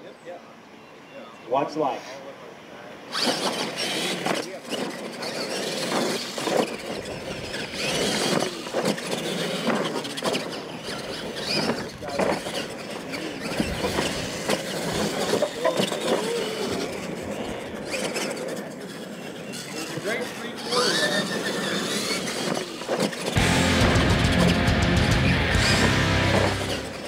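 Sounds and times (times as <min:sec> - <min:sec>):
rc truck motors whining: 0:02.9 - 0:27.0
tyres scrabbling on dirt: 0:03.1 - 0:23.4
faint voices: 0:09.3 - 0:22.3.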